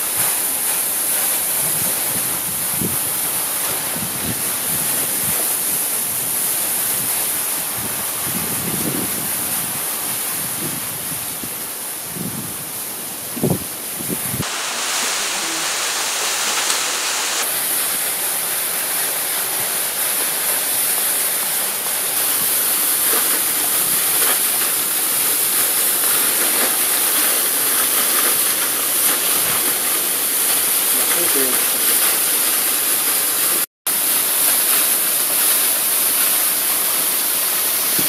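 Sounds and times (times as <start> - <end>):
waterfall rushing: 12.6 - 38.0.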